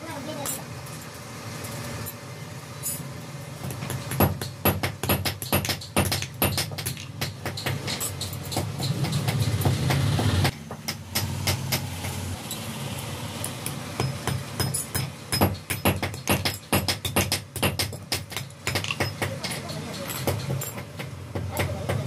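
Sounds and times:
hammer striking metal: 3.6s - 12.7s, 13.4s - 22.0s.

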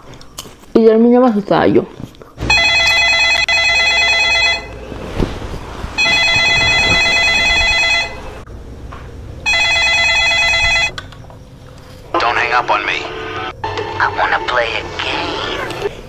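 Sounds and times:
landline telephone ringing: 2.4s - 4.8s, 6.0s - 8.4s, 9.4s - 11.0s.

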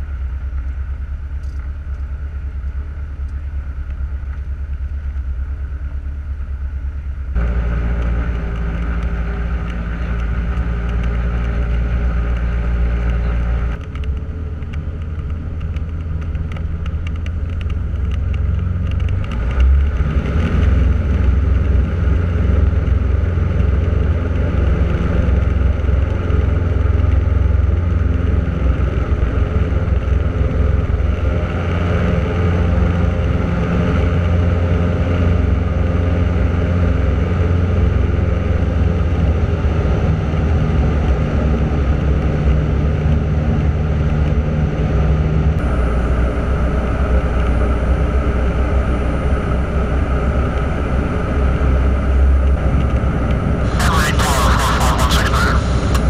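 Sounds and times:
small plane engine and propeller droning: 0.0s - 56.0s.

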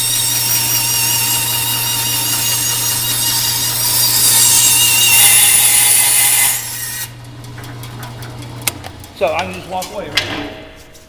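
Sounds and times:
bandsaw blade whine: 0.0s - 7.2s
bandsaw motor hum: 0.0s - 10.2s.

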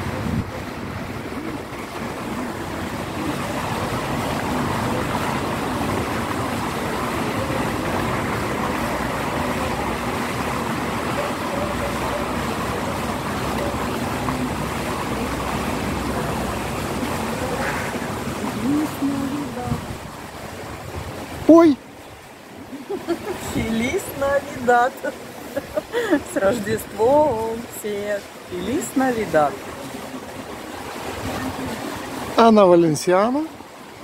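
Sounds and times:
traffic rumble: 0.0s - 34.0s.

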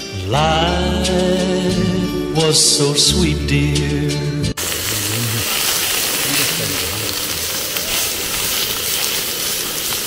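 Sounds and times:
pork sizzling on grill pan: 4.6s - 10.0s.

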